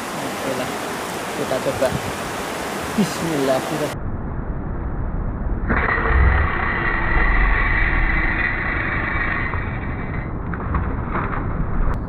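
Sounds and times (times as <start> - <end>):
shallow stream rushing: 0.0 - 4.0
wind rumbling on microphone: 0.0 - 12.0.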